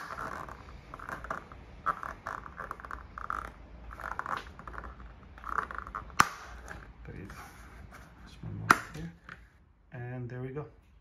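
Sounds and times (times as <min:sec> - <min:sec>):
plastic strip scraping: 0:00.0 - 0:08.1.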